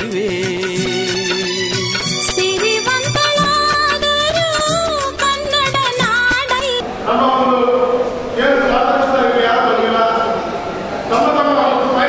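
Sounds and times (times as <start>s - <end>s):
steady percussion beats: 0.0s - 6.8s
bending melodic line: 0.7s - 6.8s.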